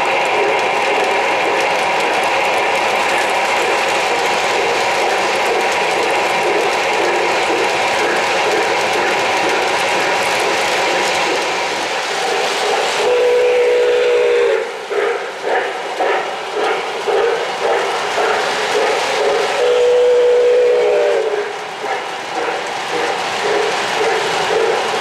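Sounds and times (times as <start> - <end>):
rhythmic steam chuffing: 0.0 - 25.0
chime steam whistle blasts: 13.0 - 14.8, 19.5 - 21.4.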